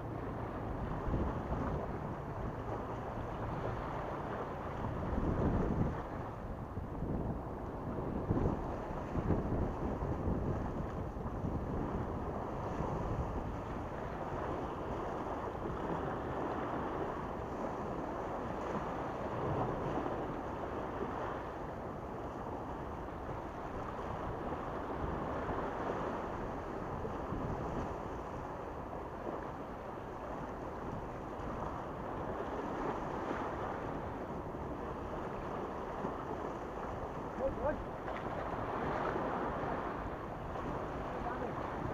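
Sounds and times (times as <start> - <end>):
wind on microphone: 0.0 - 41.9
waves splashing against rocks: 34.8 - 41.9.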